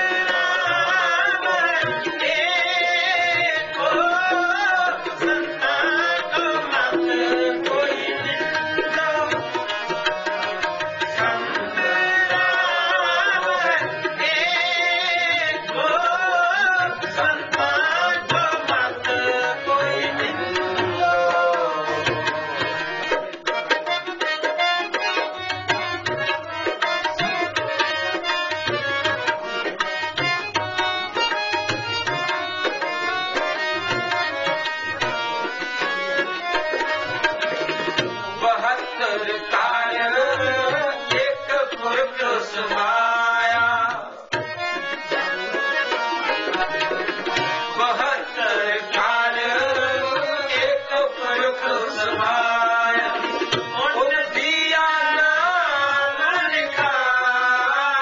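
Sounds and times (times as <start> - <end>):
person singing ornamented lines: 0.0 - 10.0, 10.6 - 23.1, 38.4 - 58.0
harmonium chords: 0.0 - 58.0
tabla drumming: 0.0 - 58.0.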